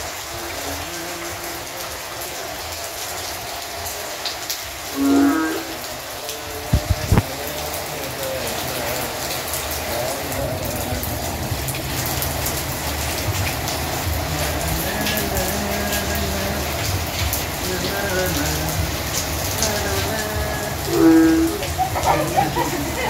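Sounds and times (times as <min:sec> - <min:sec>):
rain on a paved street: 0:00.0 - 0:23.0
person calling out: 0:05.0 - 0:07.4, 0:19.8 - 0:23.0.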